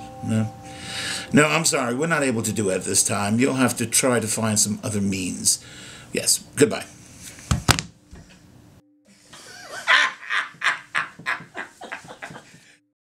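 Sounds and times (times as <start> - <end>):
men laughing loudly: 9.4 - 12.6.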